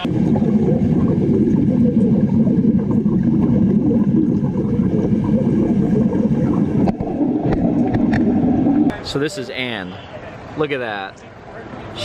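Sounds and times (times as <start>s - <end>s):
underwater welding arc crackling: 0.0s - 8.9s.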